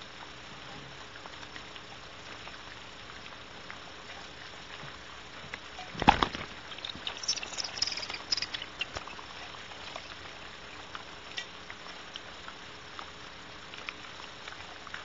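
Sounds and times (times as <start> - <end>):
faint hiss: 0.0 - 15.0
owls scratching and clicking: 5.8 - 10.3.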